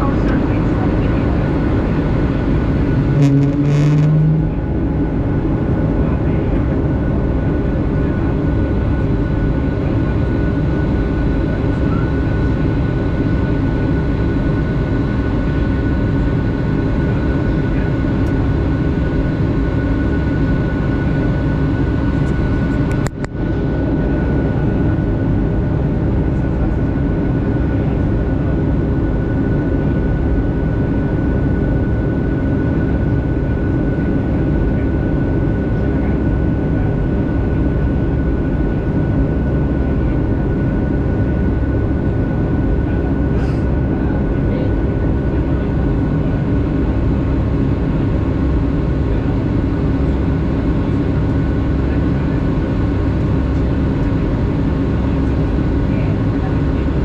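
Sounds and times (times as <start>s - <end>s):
jet engines droning: 0.0s - 57.0s
steady hum: 0.0s - 57.0s
short low tone: 3.1s - 4.8s.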